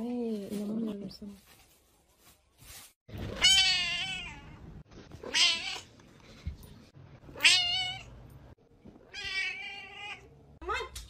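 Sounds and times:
cat meowing: 9.1s - 10.9s.

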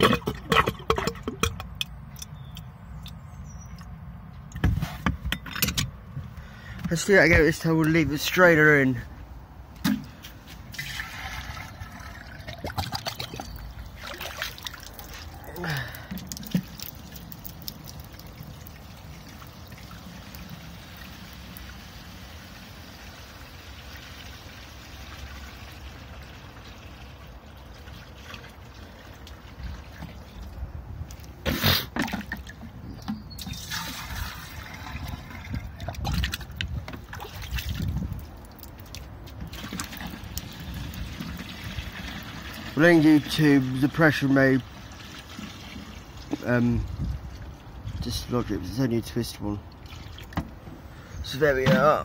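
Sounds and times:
water trickling and pouring: 10.6s - 31.3s, 32.0s - 48.4s, 49.6s - 50.7s.

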